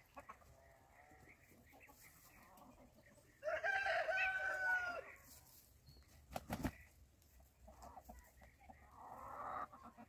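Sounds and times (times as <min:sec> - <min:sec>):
chickens clucking: 0:00.0 - 0:10.0
rough noisy chicken call: 0:03.4 - 0:05.3.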